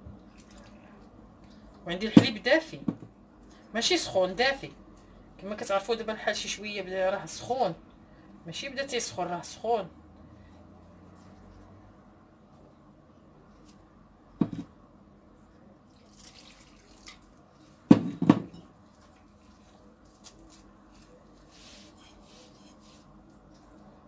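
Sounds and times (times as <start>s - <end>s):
glass knocking on glass: 14.4s - 14.7s, 17.9s - 18.6s
milk pouring into bowl: 16.0s - 17.4s
hand stirring dough rustling: 18.7s - 24.0s.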